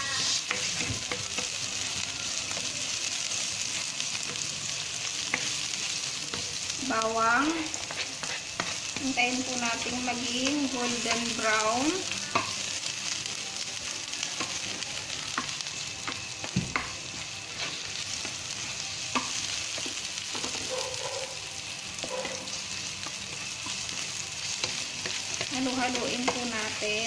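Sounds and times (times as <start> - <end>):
spatula scraping and tapping pan: 0.0 - 1.6, 5.2 - 12.7, 14.4 - 20.8, 22.0 - 26.8
garlic and onion sizzling in oil: 0.0 - 27.0.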